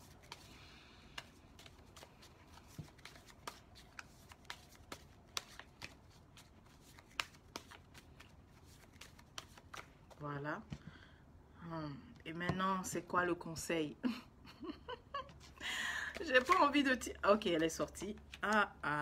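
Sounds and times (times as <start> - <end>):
cards being shuffled: 0.0 - 10.2, 16.1 - 16.8.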